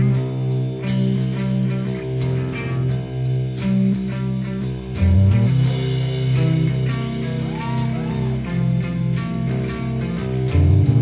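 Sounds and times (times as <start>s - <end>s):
bent guitar notes: 0.0s - 11.0s
rock music: 0.0s - 11.0s.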